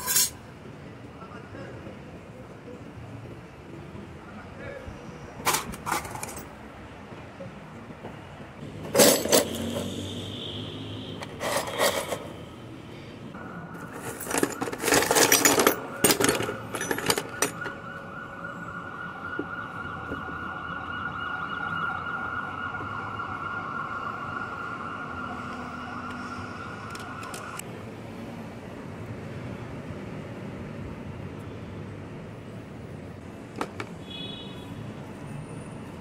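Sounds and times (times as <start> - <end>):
scrap metal clattering in a tub: 8.9 - 9.8, 13.9 - 17.6.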